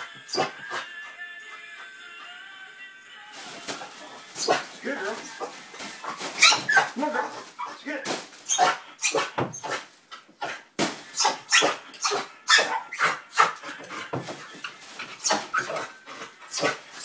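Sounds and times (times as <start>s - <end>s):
dog barking and yelping: 5.4s - 7.8s, 8.5s - 10.6s, 11.2s - 14.1s, 15.1s - 17.0s.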